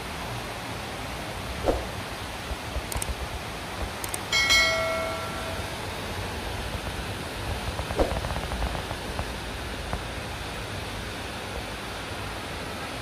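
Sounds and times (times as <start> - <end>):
heavy rain: 0.0 - 13.0
wind: 0.0 - 13.0
mouse clicks: 2.9 - 3.2
bright bell ding: 4.3 - 5.8.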